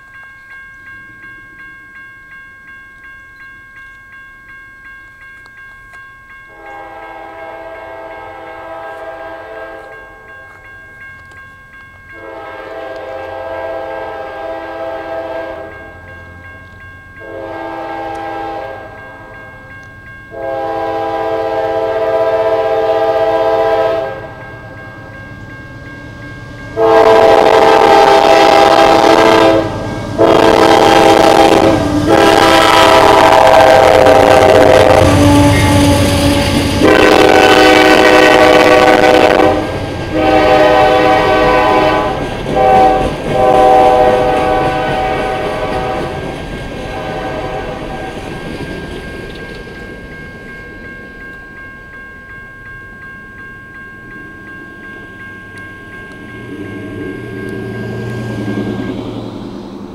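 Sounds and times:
crossing bell ringing: 0:00.0 - 0:59.9
locomotive air horn blasts: 0:06.5 - 0:10.0, 0:12.2 - 0:15.8, 0:17.2 - 0:19.3, 0:20.3 - 0:24.4, 0:26.8 - 0:48.2
freight cars rumbling and clicking: 0:42.1 - 0:51.7, 0:55.4 - 0:59.9.

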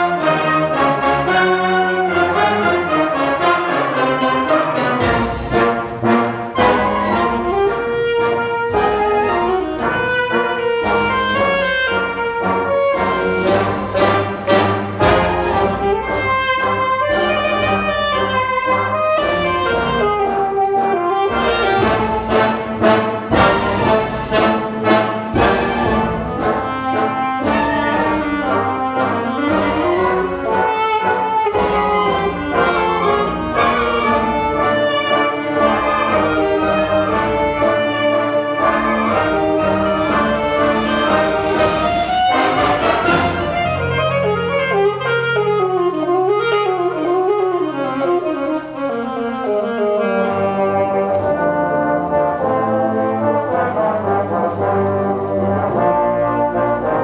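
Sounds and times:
wind band playing: 0:00.0 - 0:57.0
alto saxophone solo: 0:05.9 - 0:57.0.

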